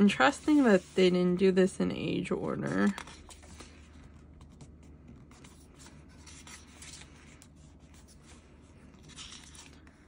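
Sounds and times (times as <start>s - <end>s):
hand rubbing glossy pages: 0.0s - 1.5s, 2.7s - 10.0s
page turning: 2.6s - 10.0s.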